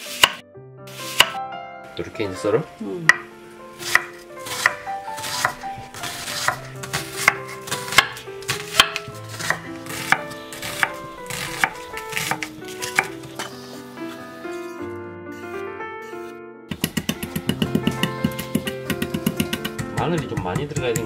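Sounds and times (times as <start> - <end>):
knife chopping on wooden board: 0.0 - 0.4, 1.0 - 1.4, 3.1 - 13.6, 16.7 - 21.0.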